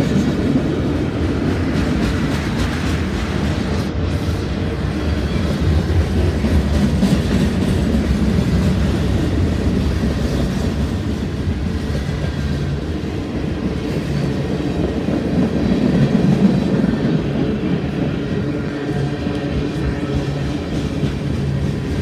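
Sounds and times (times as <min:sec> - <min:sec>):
freight train wheels on rails: 0:00.0 - 0:22.0.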